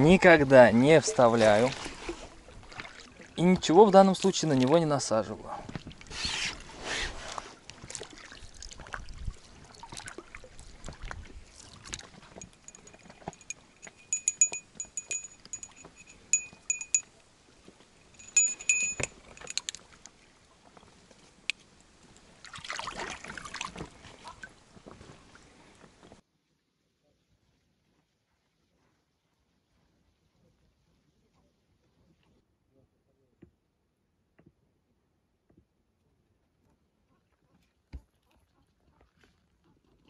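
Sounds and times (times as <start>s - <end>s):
bite-alarm bell jingling: 12.4s - 17.1s, 18.2s - 19.8s
knocks and handling noises: 18.2s - 19.8s.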